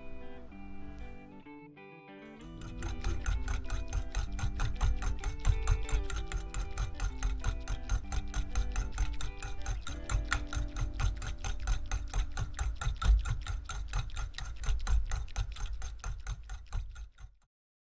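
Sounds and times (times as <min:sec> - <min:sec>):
faint background music: 0:00.0 - 0:12.4
metal whisk scraping ceramic bowl: 0:02.4 - 0:17.3.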